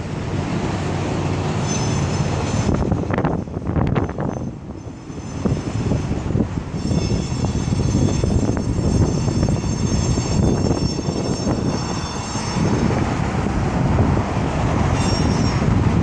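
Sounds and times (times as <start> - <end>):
traffic rumble: 0.0 - 16.0
thin high squeal: 1.6 - 12.9, 14.9 - 15.8.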